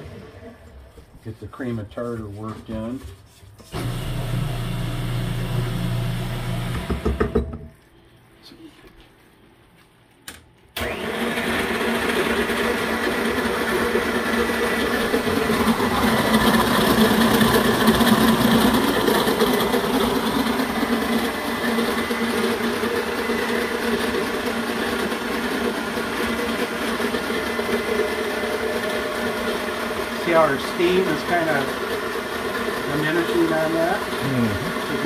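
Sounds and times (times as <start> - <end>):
stand mixer whisking: 3.7 - 7.4, 10.8 - 35.0.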